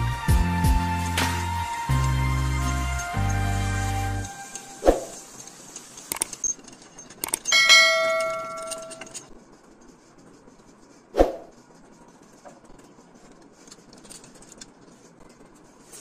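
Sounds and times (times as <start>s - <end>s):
steel parts knocking on metal: 6.1s - 9.3s
metal clang ringing: 7.4s - 9.2s.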